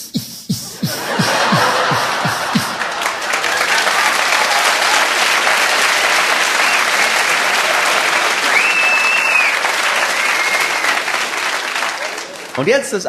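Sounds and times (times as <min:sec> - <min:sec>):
audience applauding: 0:00.9 - 0:13.0
high whistle from crowd: 0:06.4 - 0:07.3, 0:08.2 - 0:11.2.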